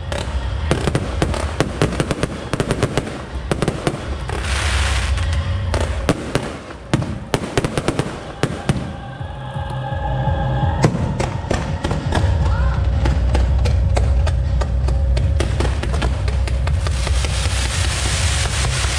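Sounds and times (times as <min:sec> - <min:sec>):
fireworks bangs and cracks: 0:00.0 - 0:09.0, 0:10.8 - 0:18.9
low rumble: 0:00.0 - 0:18.9
hissing rush: 0:16.8 - 0:18.9.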